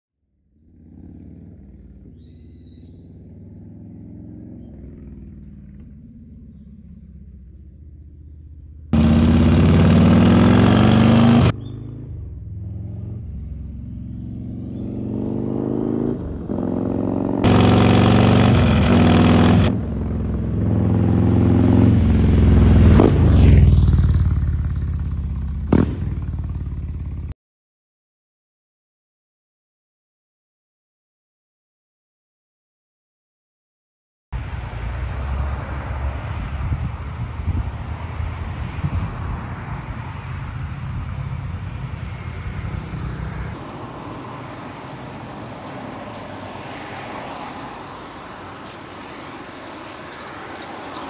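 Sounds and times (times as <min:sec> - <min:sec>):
motorcycle engine revving: 0:00.5 - 0:27.3, 0:47.8 - 0:51.0
motorcycle riding by: 0:00.5 - 0:27.3, 0:41.2 - 0:51.0.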